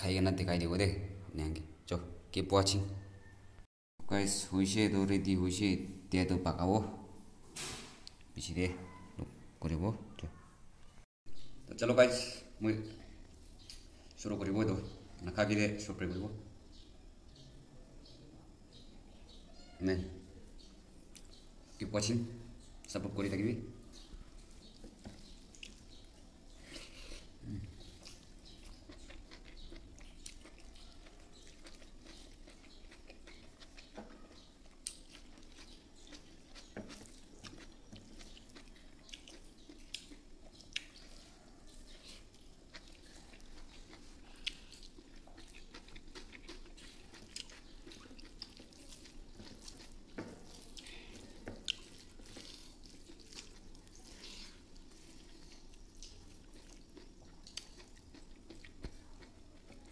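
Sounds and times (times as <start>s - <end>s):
person chewing: 21.0s - 21.6s, 23.8s - 59.9s.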